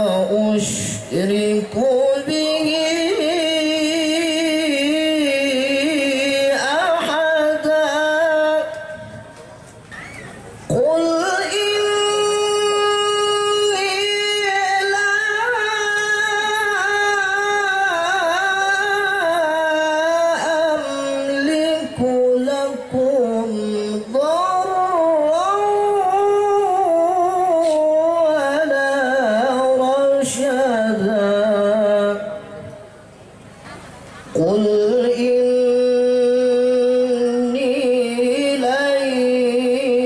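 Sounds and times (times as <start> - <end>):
man reciting melodically: 0.0 - 9.4, 10.7 - 32.6, 34.3 - 40.0.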